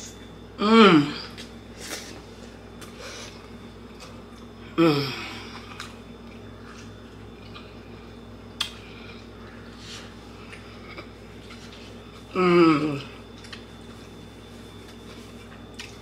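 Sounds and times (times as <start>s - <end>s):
person humming mmm: 0.6s - 2.0s, 4.6s - 5.6s, 12.3s - 13.2s
soft chewing: 13.2s - 16.0s.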